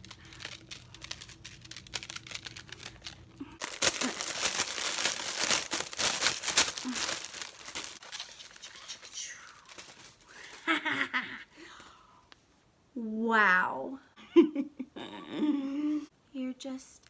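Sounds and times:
plastic packaging crinkling: 0.0 - 10.8.

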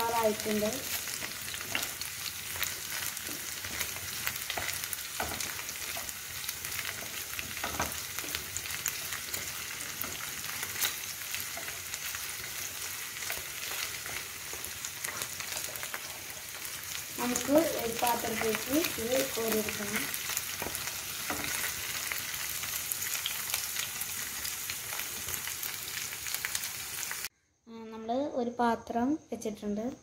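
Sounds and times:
chicken sizzling in a frying pan: 0.0 - 27.3.

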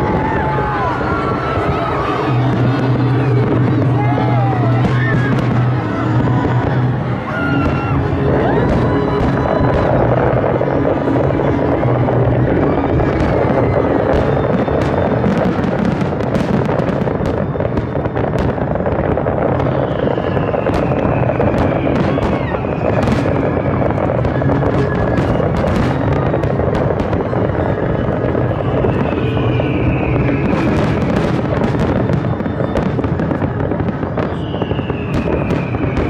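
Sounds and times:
fireworks bursts rumbling: 0.0 - 36.0
high falling whistle: 19.3 - 36.0.

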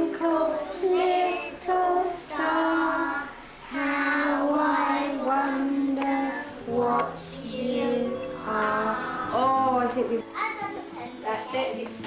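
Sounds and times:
children singing: 0.0 - 9.6.

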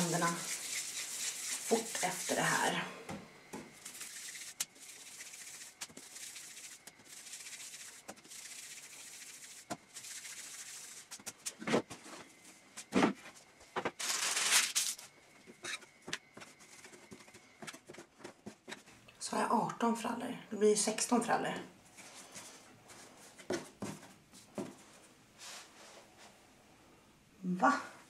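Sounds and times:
hands rolling dough: 3.5 - 12.1.

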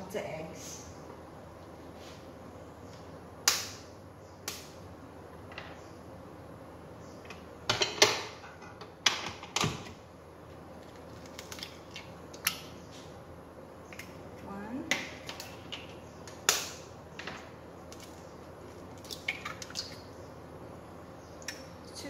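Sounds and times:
eggs cracked against bowl: 14.9 - 16.8, 19.0 - 20.0.

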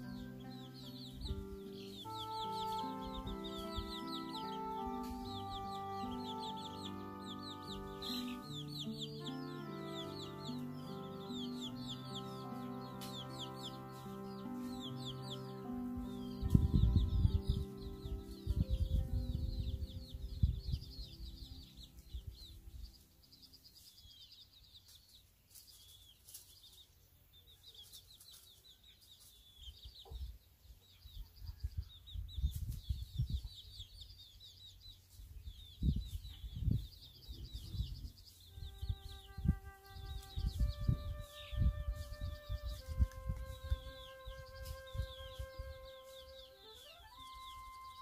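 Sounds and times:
chickens clucking: 0.0 - 19.0
soft background music: 0.0 - 24.2, 38.3 - 48.0
small birds chirping: 0.0 - 48.0.

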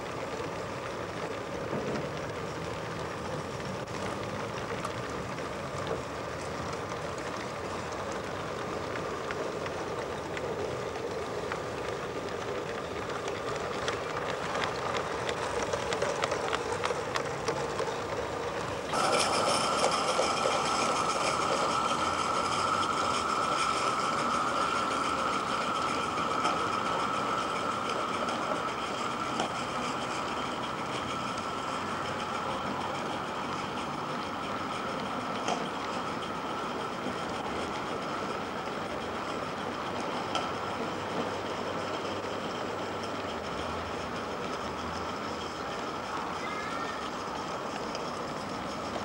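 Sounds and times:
model steam locomotive running: 0.0 - 49.0
wheels clicking over track: 0.0 - 49.0
steady rush: 18.6 - 35.0.

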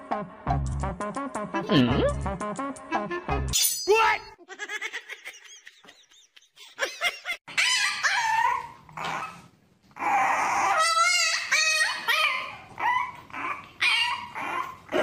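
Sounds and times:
puppy whining and yipping: 7.5 - 15.0.

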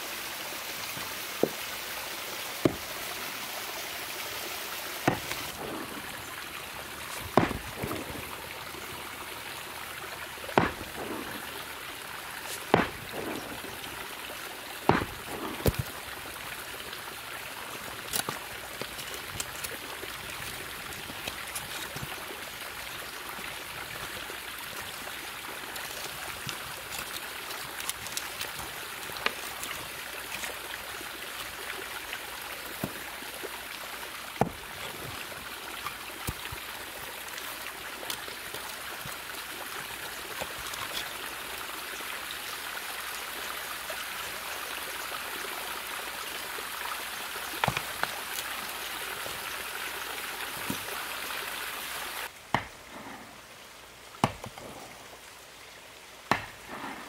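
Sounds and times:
sharp crackles: 5.0 - 9.2, 10.4 - 16.6, 17.3 - 22.5, 25.7 - 31.0.

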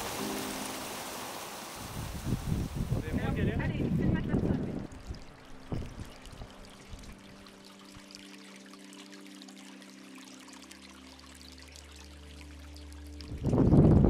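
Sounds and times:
water trickling and splashing: 0.0 - 14.0.

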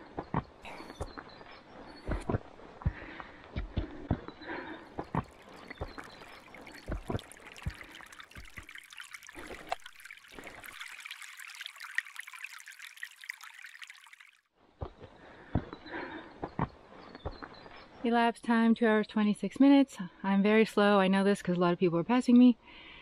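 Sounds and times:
water trickling over rocks: 4.9 - 14.5.

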